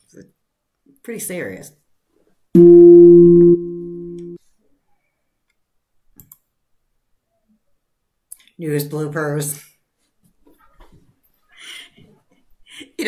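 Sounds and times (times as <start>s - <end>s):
low electronic buzzer tone: 2.6s - 4.4s.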